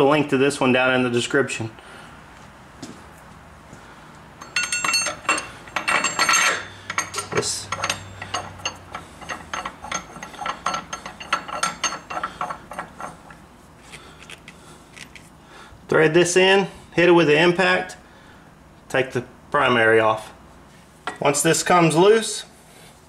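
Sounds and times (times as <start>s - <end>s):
metal tool clinking and rattling: 4.4s - 15.3s.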